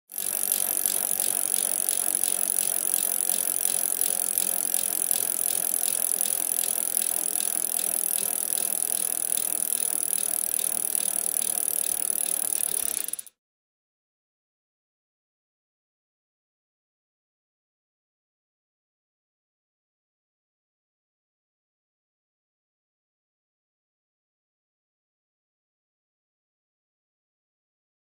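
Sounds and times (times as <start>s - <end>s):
bicycle ticking: 0.1s - 13.3s.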